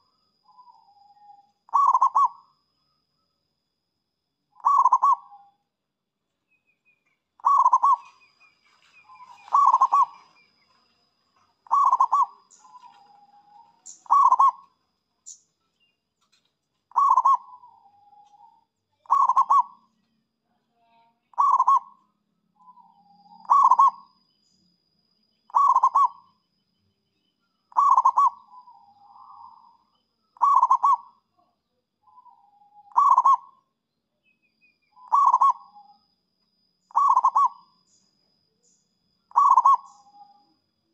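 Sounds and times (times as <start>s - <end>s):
dove cooing: 0.6s - 2.4s, 4.6s - 5.4s, 7.4s - 8.3s, 9.0s - 10.4s, 11.6s - 14.7s, 16.9s - 19.8s, 21.4s - 21.9s, 22.8s - 24.0s, 25.5s - 26.2s, 27.7s - 29.8s, 30.4s - 31.1s, 32.1s - 33.6s, 35.0s - 35.8s, 36.9s - 37.7s, 39.3s - 40.4s.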